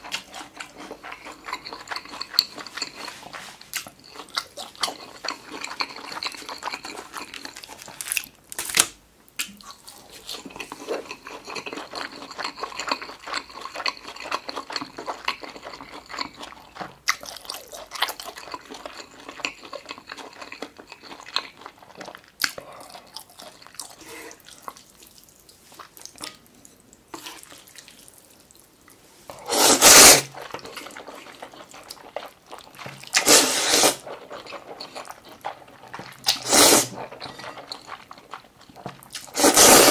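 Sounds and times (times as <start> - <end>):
wet chewing: 0.0 - 8.8, 9.4 - 39.9
slurping noodles: 29.3 - 38.4, 39.2 - 39.9.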